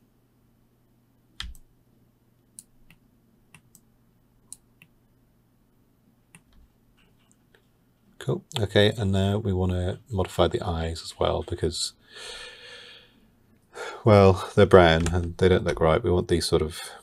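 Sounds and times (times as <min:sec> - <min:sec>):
faint low hum: 0:00.0 - 0:17.0
computer mouse clicking: 0:01.4 - 0:01.7, 0:02.6 - 0:03.9, 0:04.5 - 0:04.9, 0:06.3 - 0:07.4.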